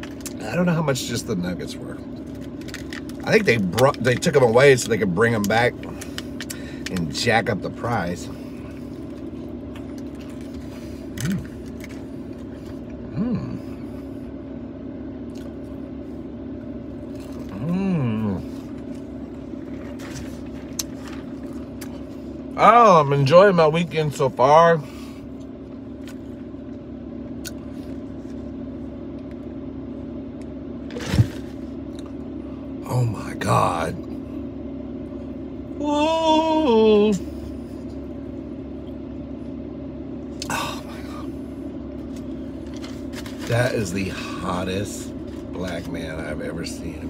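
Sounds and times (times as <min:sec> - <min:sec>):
steady low car cabin hum: 0:00.0 - 0:47.0
man humming while chewing: 0:11.2 - 0:11.6, 0:12.9 - 0:13.9, 0:17.4 - 0:18.7, 0:40.4 - 0:41.3.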